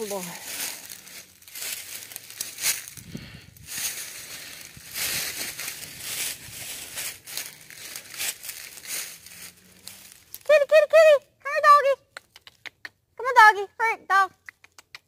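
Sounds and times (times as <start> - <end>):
footsteps crunching dry leaves: 0.0 - 10.6.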